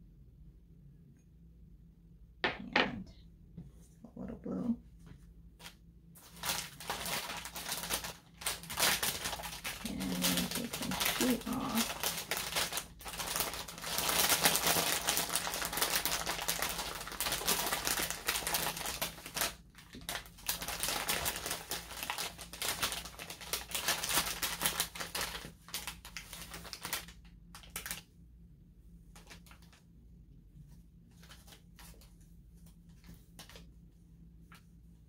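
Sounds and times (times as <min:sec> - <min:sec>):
plastic bag of dry moss crinkling: 0:05.6 - 0:28.2, 0:29.1 - 0:29.8.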